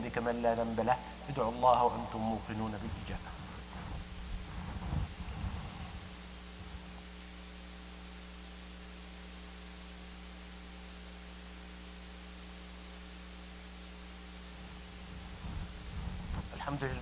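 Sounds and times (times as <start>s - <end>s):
electrical mains hum: 0.0s - 17.0s
even hiss: 0.0s - 17.0s.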